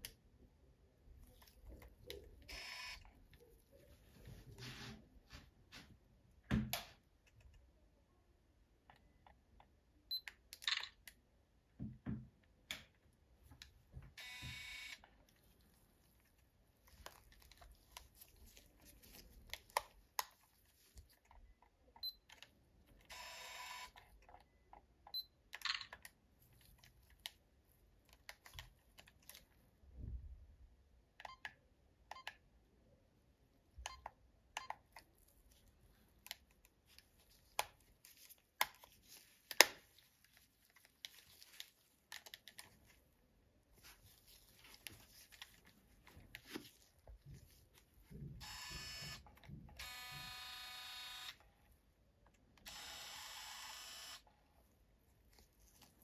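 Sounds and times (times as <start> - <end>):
camera whirring: 2.5 - 3.1, 14.2 - 15.1, 23.1 - 24.0, 48.4 - 51.4, 52.6 - 54.3.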